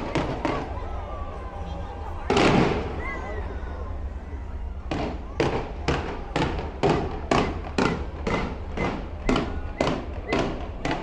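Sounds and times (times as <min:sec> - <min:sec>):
fireworks bursting: 0:00.0 - 0:00.8, 0:02.2 - 0:03.0, 0:04.8 - 0:11.0.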